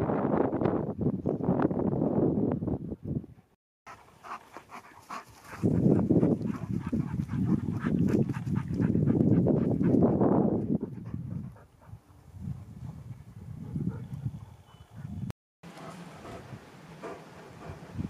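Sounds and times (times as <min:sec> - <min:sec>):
wind buffeting microphone: 0:00.0 - 0:03.5, 0:05.1 - 0:15.3, 0:16.2 - 0:18.0
dog panting: 0:03.9 - 0:10.1, 0:10.8 - 0:12.1, 0:15.8 - 0:18.0.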